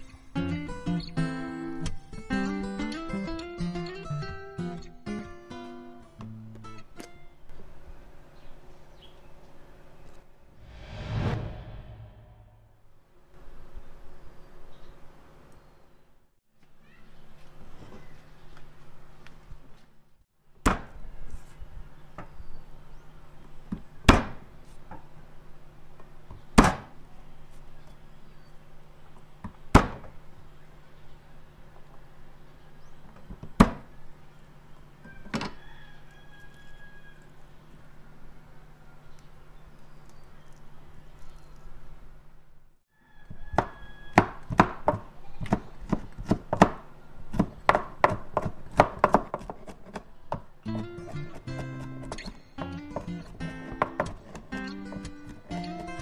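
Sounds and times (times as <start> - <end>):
cleaver chopping on cutting board: 43.6 - 50.4.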